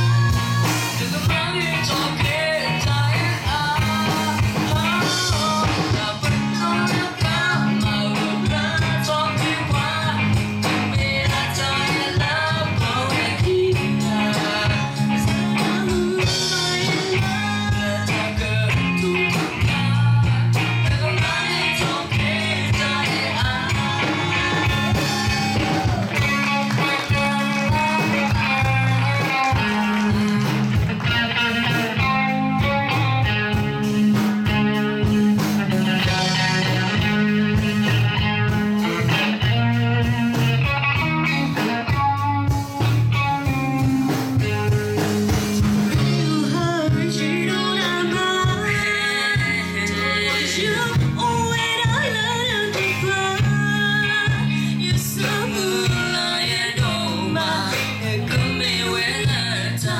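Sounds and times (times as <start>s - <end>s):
electric guitar: 0.0s - 59.9s
live rock band playing pop song: 0.0s - 59.9s.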